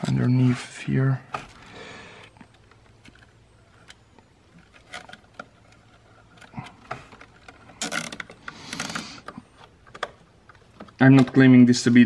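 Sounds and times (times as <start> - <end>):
plastic wiring rustles: 0.0 - 12.0.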